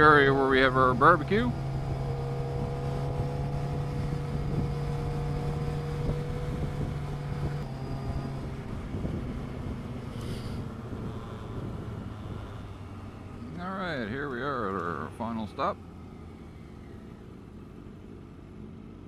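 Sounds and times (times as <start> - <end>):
wind rushing over microphone: 0.0 - 14.2
motorcycle engine cruising: 0.0 - 19.0.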